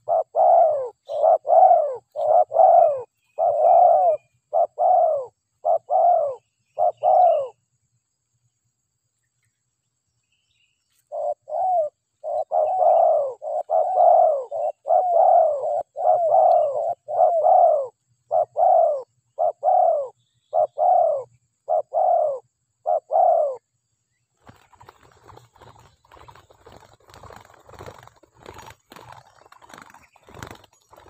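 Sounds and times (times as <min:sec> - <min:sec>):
dove cooing: 0:00.0 - 0:07.6, 0:11.1 - 0:23.6.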